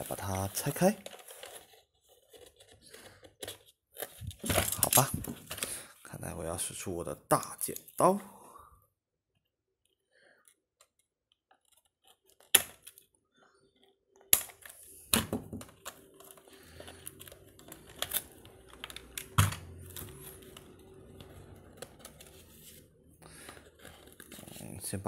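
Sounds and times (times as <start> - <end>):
cardboard rustling: 0.0 - 5.9, 15.5 - 25.0.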